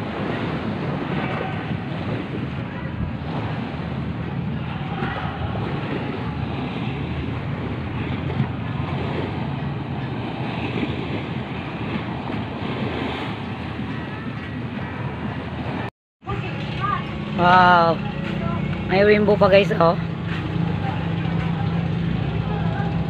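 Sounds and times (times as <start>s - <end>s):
wind buffeting the microphone: 0.0s - 17.4s
sea waves splashing against a seawall: 0.0s - 18.9s.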